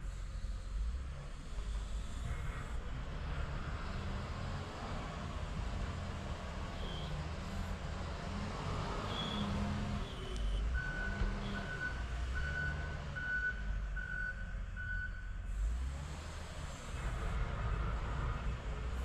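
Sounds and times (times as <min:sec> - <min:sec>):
diesel engines rumbling: 0:00.0 - 0:19.0
reversing alarm beeping: 0:10.1 - 0:15.4.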